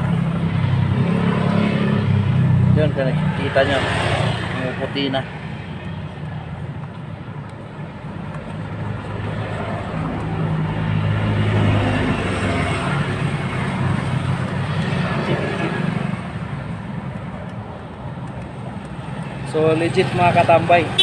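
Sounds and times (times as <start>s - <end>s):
vehicle engine passing: 0.0s - 6.2s, 8.5s - 16.7s
street traffic: 0.0s - 21.0s.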